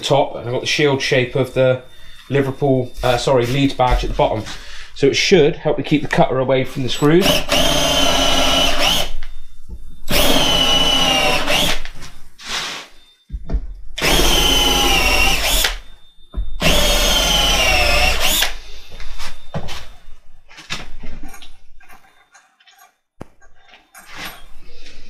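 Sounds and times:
cordless drill driving screws: 0:07.2 - 0:09.2, 0:10.1 - 0:11.9, 0:14.0 - 0:15.8, 0:16.6 - 0:18.6.

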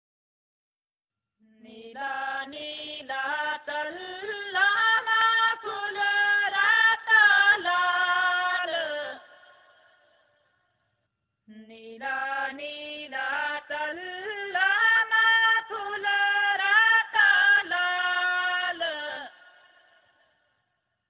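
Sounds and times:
person singing unaccompanied: 0:01.4 - 0:09.3.

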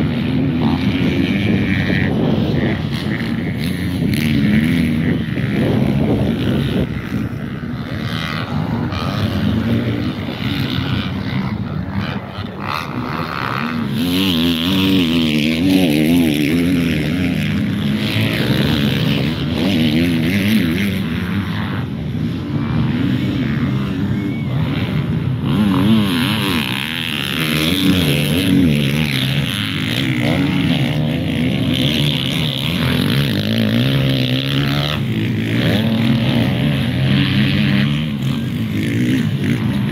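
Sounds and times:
dirt bike engines revving: 0:00.0 - 0:39.9.

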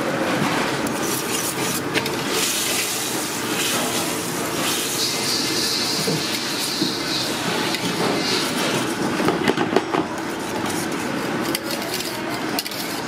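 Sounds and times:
whisk scraping a metal pot: 0:04.6 - 0:09.0.

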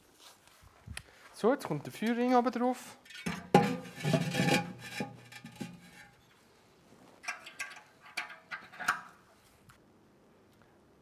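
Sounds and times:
ceramic scraping on ceramic: 0:03.0 - 0:06.2
ceramic ring knocking into grill: 0:03.3 - 0:05.7.

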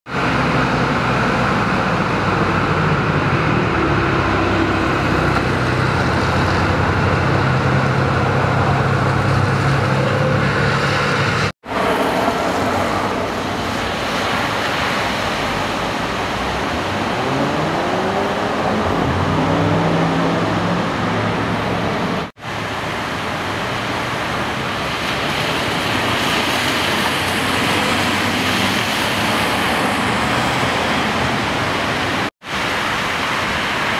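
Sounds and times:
engine passing by: 0:00.1 - 0:22.6
street traffic: 0:00.1 - 0:33.9.

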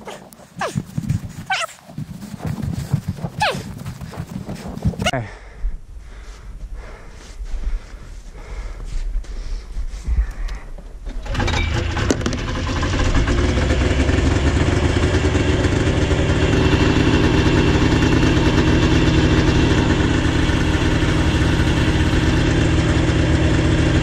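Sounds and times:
snowmobile engine starting and idling: 0:00.3 - 0:04.6, 0:11.0 - 0:24.0.

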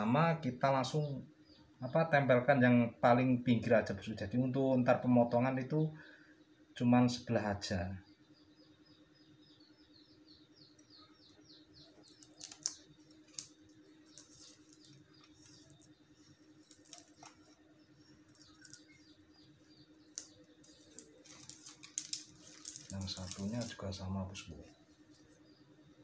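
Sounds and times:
plastic ribbon rustling: 0:12.0 - 0:19.0, 0:20.1 - 0:24.0.

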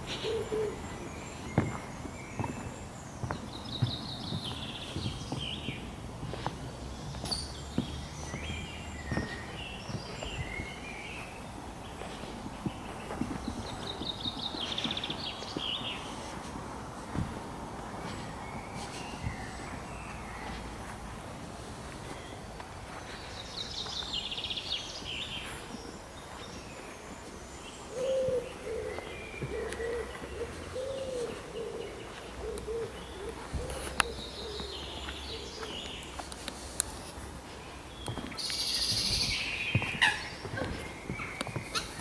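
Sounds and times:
pigeon cooing: 0:00.0 - 0:00.9, 0:27.9 - 0:35.5
songbirds chirping and singing: 0:00.0 - 0:42.0.

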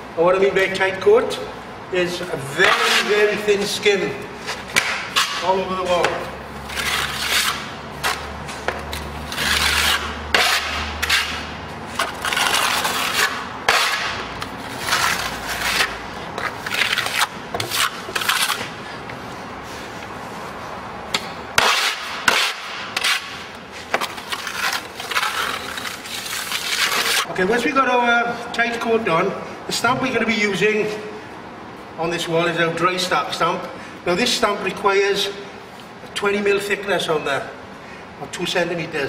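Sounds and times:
trowel scraping render on wall: 0:02.5 - 0:03.5, 0:04.5 - 0:18.7, 0:21.6 - 0:27.3.

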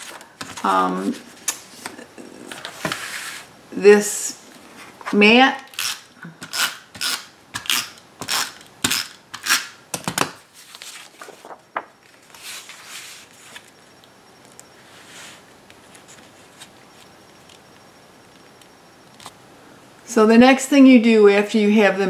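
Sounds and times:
paper rustles: 0:10.5 - 0:13.8.

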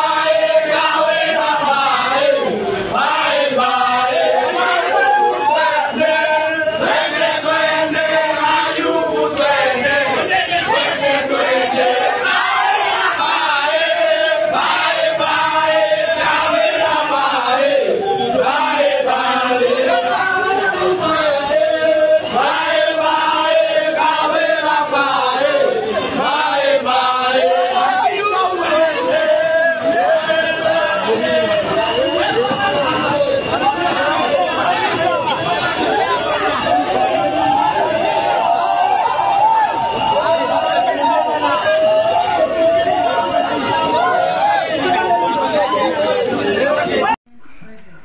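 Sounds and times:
men chanting in unison: 0:00.0 - 0:38.7, 0:40.1 - 0:47.2
shouting voices: 0:00.0 - 0:47.2.

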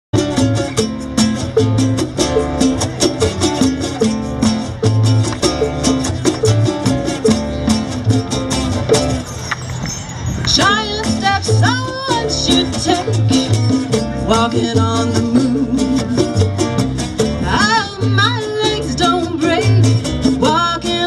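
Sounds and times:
acoustic guitar: 0:00.1 - 0:21.0
congas: 0:00.1 - 0:21.0
upright bass line: 0:00.1 - 0:21.0
woman singing: 0:10.5 - 0:13.6, 0:14.2 - 0:16.3, 0:17.4 - 0:21.0.

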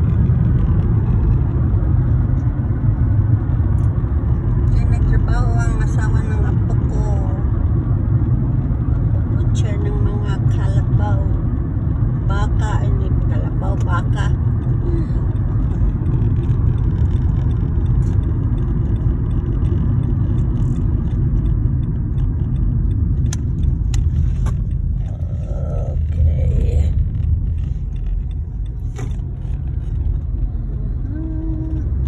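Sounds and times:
road and engine rumble: 0:00.0 - 0:32.0.

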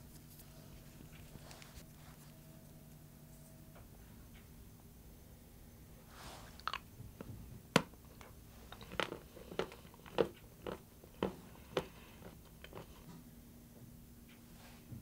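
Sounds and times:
chocolate cracking: 0:07.8 - 0:13.0.

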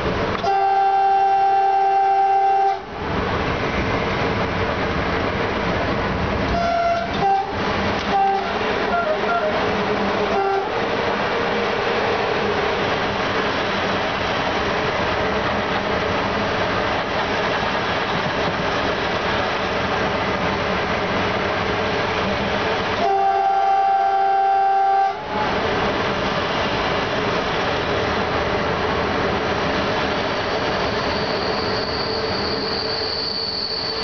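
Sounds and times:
train wheels on rail: 0:00.0 - 0:34.0
train horn blast: 0:00.4 - 0:02.9, 0:06.5 - 0:09.7, 0:10.3 - 0:10.8, 0:23.0 - 0:25.6.

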